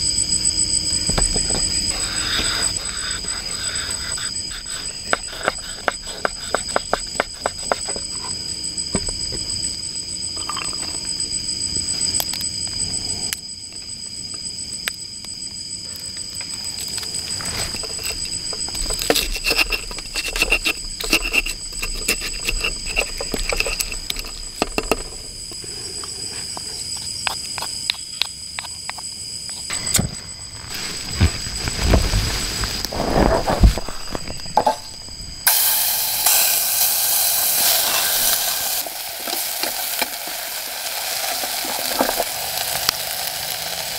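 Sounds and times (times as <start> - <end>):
steady high-pitched whine: 0.0 - 43.7
stone pestle grinding in mortar: 1.9 - 8.4, 17.5 - 28.8.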